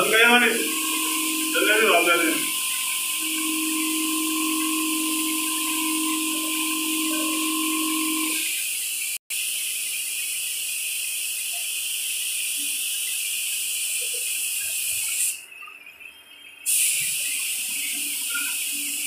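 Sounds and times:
air spray gun hissing: 0.0 - 9.8, 13.6 - 15.4, 16.7 - 19.0.

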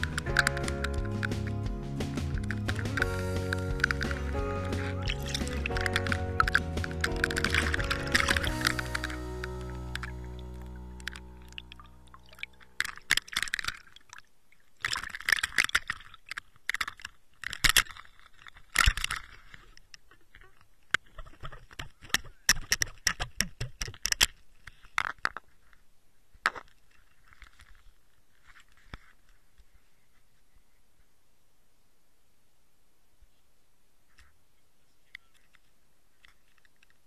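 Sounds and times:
sharp clicks and knocks: 0.0 - 9.2
fish splashing in water: 0.0 - 16.8.

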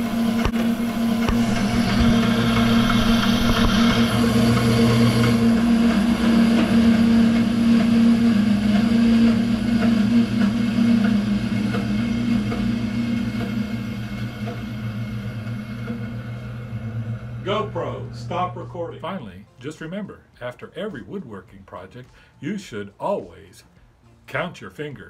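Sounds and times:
electric motor humming and whirring: 0.0 - 19.3.

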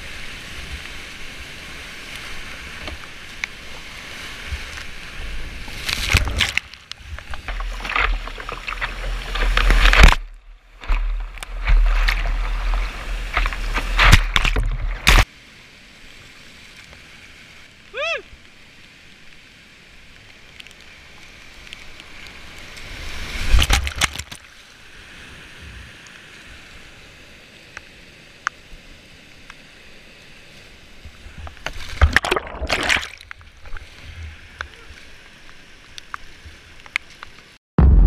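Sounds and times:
whitewater rushing: 0.0 - 15.3
water splashing: 0.2 - 15.3, 31.1 - 37.4.

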